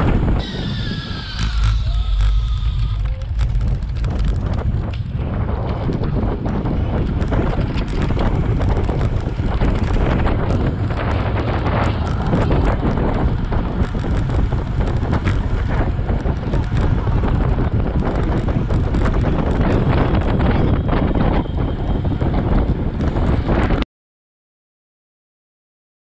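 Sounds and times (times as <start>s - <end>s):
wind buffeting microphone: 0.0s - 23.8s
crackles: 0.4s - 20.1s.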